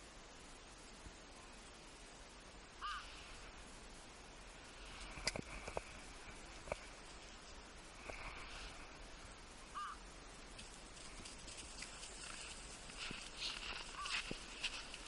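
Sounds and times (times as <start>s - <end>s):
footsteps crunching in snow: 10.5s - 15.0s
short high calls: 13.5s - 14.3s.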